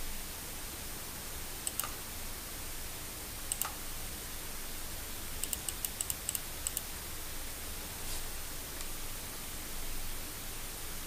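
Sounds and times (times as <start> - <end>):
microphone hiss: 0.0 - 11.0
computer mouse clicks: 1.6 - 2.0, 3.5 - 3.8, 5.4 - 6.9.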